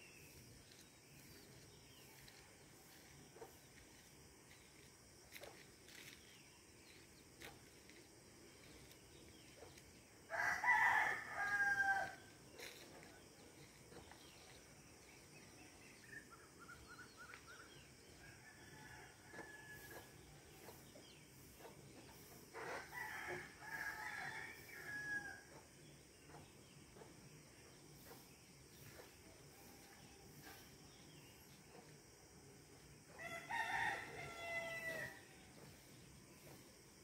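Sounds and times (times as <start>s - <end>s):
insects chirping: 0.0s - 37.0s
rooster crowing: 10.3s - 12.3s, 33.2s - 35.3s.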